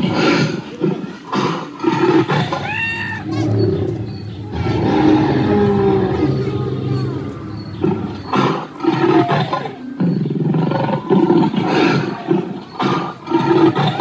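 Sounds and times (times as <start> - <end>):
recorded dinosaur roars and growls: 2.4 - 9.6.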